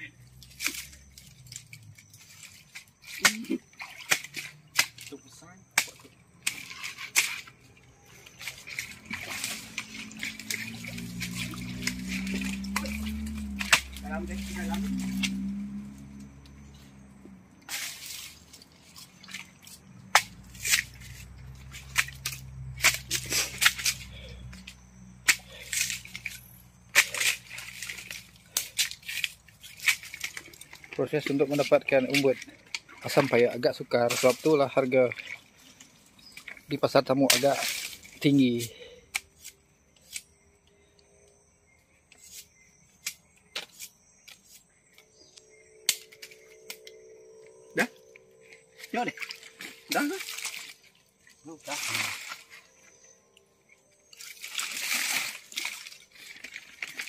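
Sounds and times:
machete chopping palm stem: 3.2 - 5.1, 20.1 - 21.0, 21.8 - 24.1, 25.2 - 26.3
high insect drone: 7.9 - 18.0, 38.3 - 54.4.

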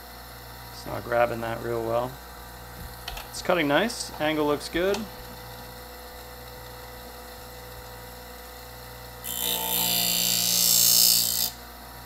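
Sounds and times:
sharpener motor humming: 2.9 - 12.0
scissor blade grinding: 9.2 - 11.6.

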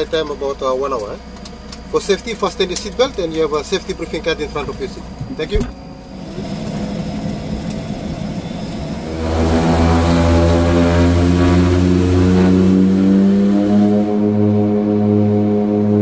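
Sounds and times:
propeller plane engine drone: 0.0 - 16.0.

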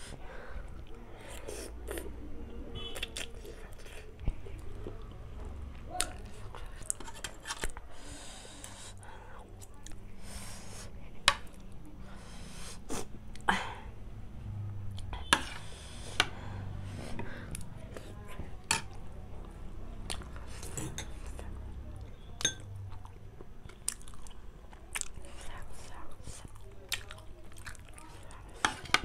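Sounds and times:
chewing: 0.7 - 9.0, 16.4 - 29.0
cutlery clinking on a plate: 22.4 - 22.7.

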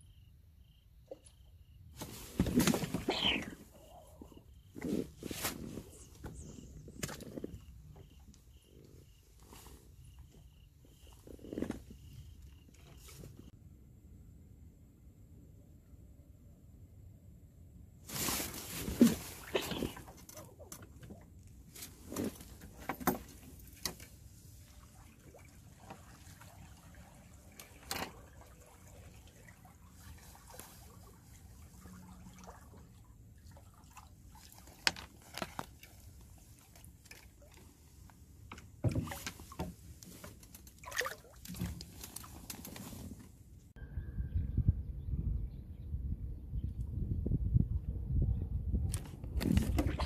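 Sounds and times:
small water sounds: 18.1 - 43.4, 49.4 - 50.0.

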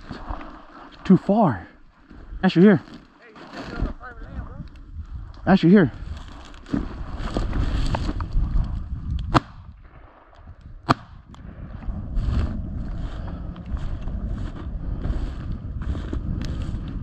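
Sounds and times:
footsteps through dry grass: 0.0 - 1.0, 1.9 - 5.3, 6.0 - 9.1, 11.8 - 17.0.

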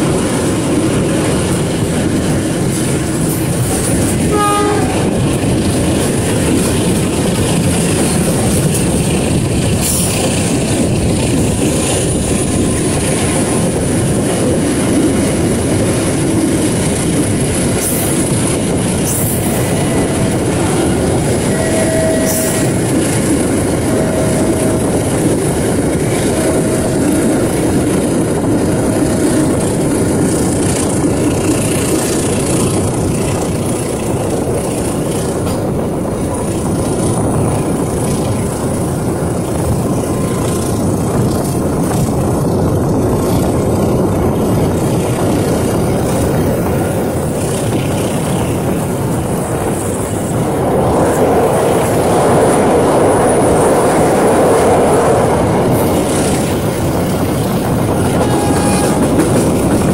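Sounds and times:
train wheels rumbling on rails: 0.0 - 59.9
short high tones: 19.7 - 22.9.

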